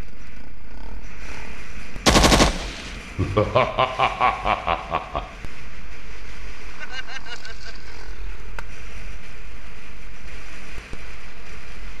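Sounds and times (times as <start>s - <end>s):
machine-gun fire: 2.1s - 3.1s
rapid pitched pulses: 2.1s - 5.0s.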